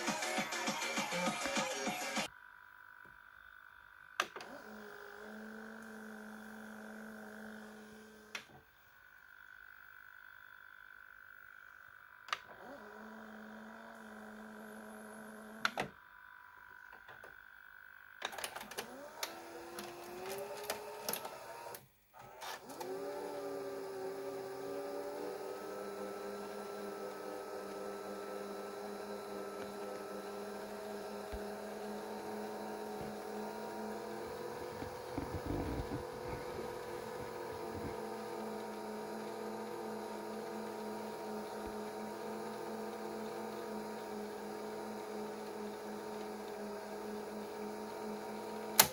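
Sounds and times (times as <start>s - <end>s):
tape motors whirring: 0.0s - 48.9s
tape transport clicking: 18.2s - 23.1s, 26.2s - 47.2s, 48.0s - 48.9s.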